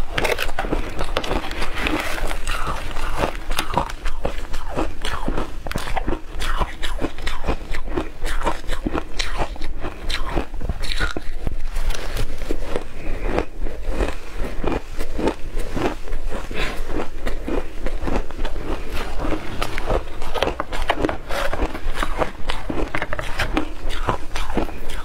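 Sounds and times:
shaved ice crunching: 0.0s - 5.2s.

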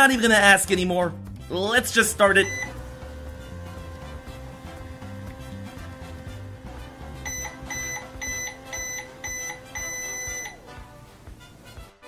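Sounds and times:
background music: 0.0s - 12.0s
toy microwave beeping: 2.3s - 10.8s.

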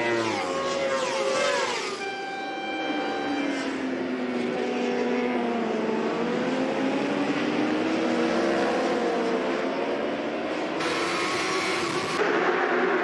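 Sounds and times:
motorbike engines at high revs: 10.8s - 12.2s.

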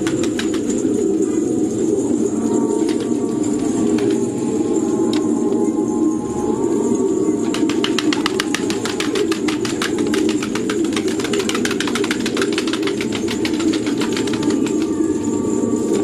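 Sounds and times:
pigeon wings flapping: 0.0s - 1.9s, 2.8s - 4.3s, 7.4s - 15.3s
steady low hum: 0.0s - 16.0s.

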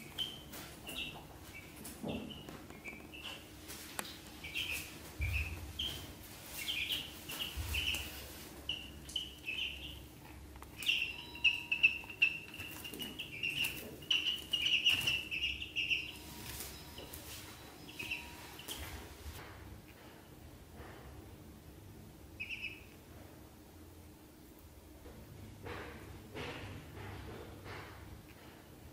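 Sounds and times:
ducklings peeping: 0.0s - 19.4s, 22.3s - 23.0s.

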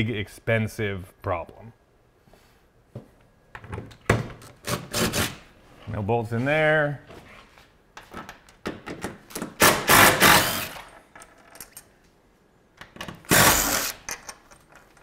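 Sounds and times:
power tool bursts: 9.6s - 10.9s, 13.3s - 14.1s.

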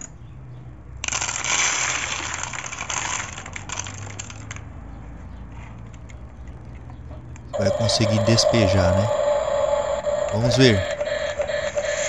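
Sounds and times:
popcorn kernels rattling into funnel: 1.0s - 4.6s.

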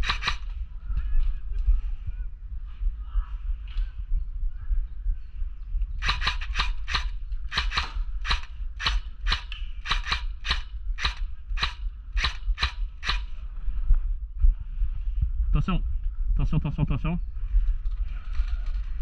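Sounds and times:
airsoft gun shots: 0.0s - 0.5s, 6.0s - 13.3s.

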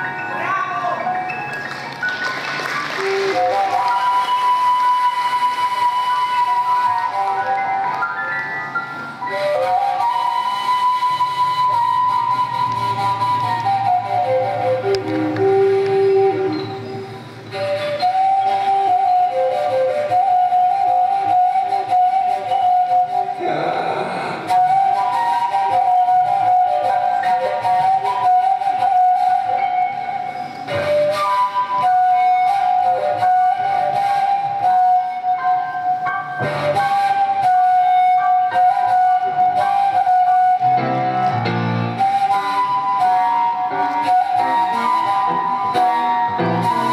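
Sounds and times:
piano accompaniment: 0.0s - 23.6s, 24.4s - 46.9s
flute holding a steady note: 3.0s - 46.9s
breathy rush of air: 23.4s - 24.8s.

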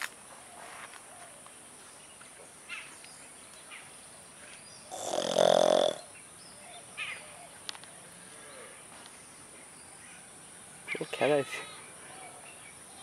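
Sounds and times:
pig grunting: 4.9s - 6.0s.

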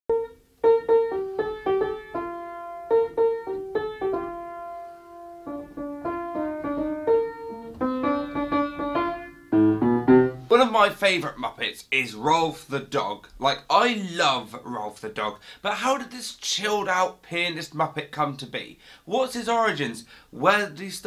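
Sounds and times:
upright piano tune: 0.1s - 11.5s.

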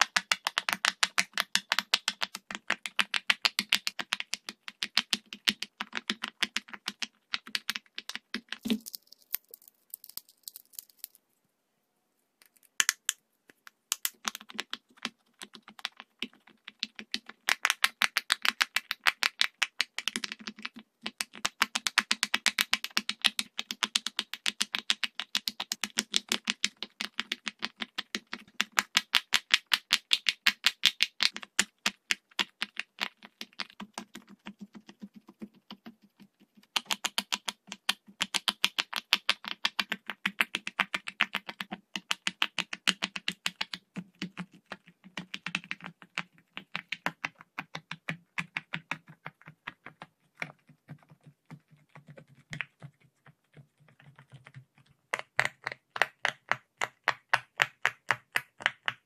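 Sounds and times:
fidget toy bubbles popping: 0.0s - 11.2s, 12.4s - 15.1s.

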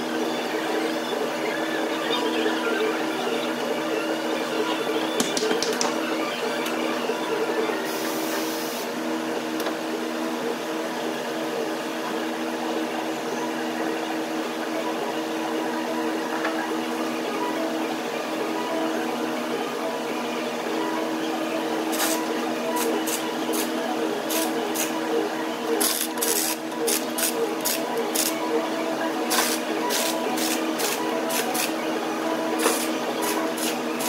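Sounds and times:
mechanical hum: 0.0s - 34.0s.

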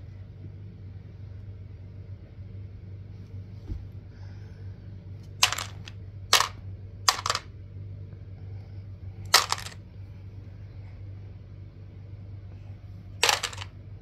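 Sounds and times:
plastic dice clattering: 5.4s - 7.5s, 9.3s - 9.8s, 13.2s - 13.7s.

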